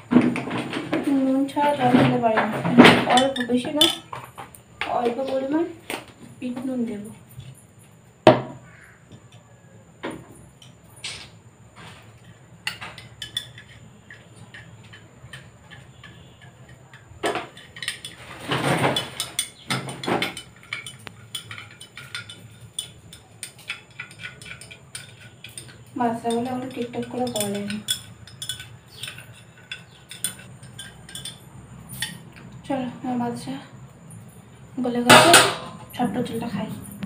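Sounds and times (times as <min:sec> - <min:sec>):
metal spoon clinking in a glass: 0:20.3 - 0:32.2.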